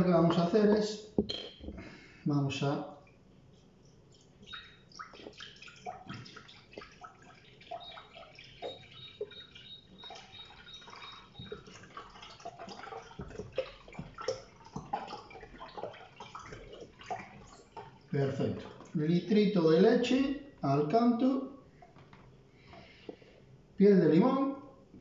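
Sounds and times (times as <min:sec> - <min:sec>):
milk glugging and splashing: 0:02.9 - 0:19.1
carton spout gurgles: 0:04.0 - 0:20.1.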